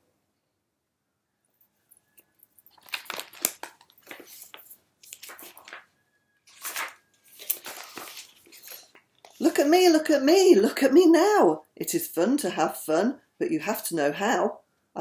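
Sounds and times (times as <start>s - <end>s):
pages turning: 2.6s - 5.9s, 6.5s - 9.6s
paper rustling: 2.6s - 9.6s.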